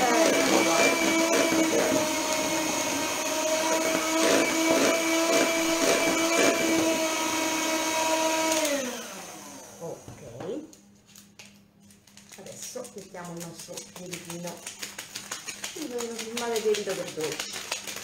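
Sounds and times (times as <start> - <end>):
electric hand mixer whirring: 0.0 - 10.1.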